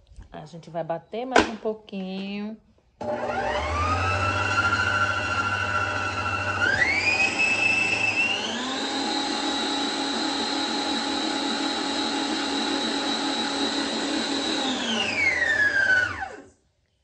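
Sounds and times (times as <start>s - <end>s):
electric mixer motor whining: 3.0s - 16.5s.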